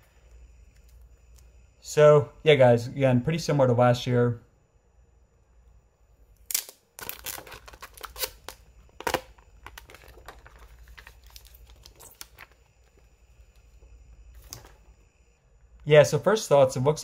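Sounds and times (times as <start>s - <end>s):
plastic film crackling as peeled: 6.5s - 12.6s.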